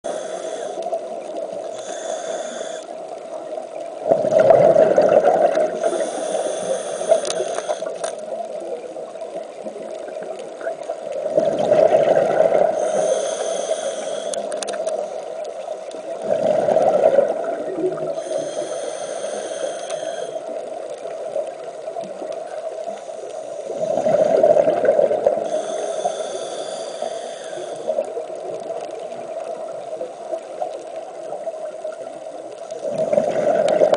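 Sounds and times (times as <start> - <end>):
regulator inhale hiss: 0.0 - 3.2, 5.7 - 8.2, 12.6 - 15.5, 18.0 - 20.7, 22.9 - 24.5, 25.4 - 28.2
gurgling exhaled bubbles: 3.9 - 7.5, 9.5 - 14.2, 16.1 - 21.4, 23.7 - 29.7, 32.7 - 33.9.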